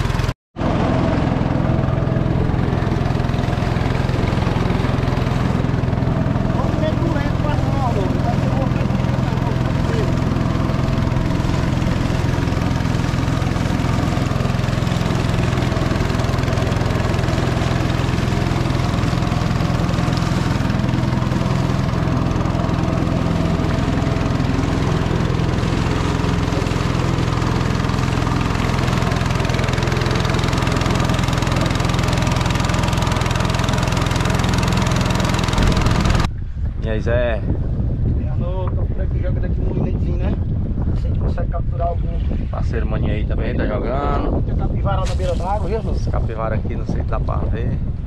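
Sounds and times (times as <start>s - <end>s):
boat motor running: 0.0s - 37.2s.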